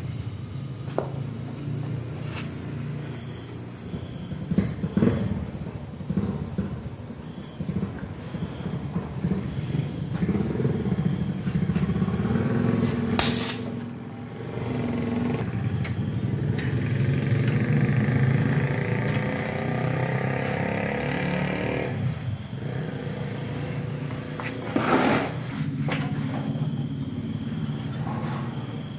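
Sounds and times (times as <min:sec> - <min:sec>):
short hiss: 0:13.2 - 0:13.7.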